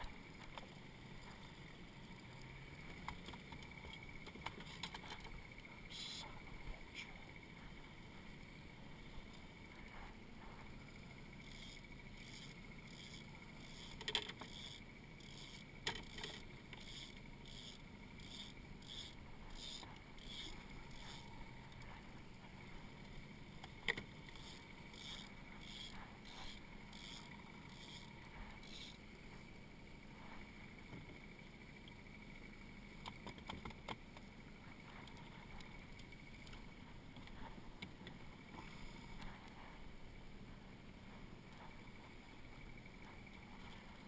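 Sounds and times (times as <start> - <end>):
faint steady hum: 0.0 - 44.0.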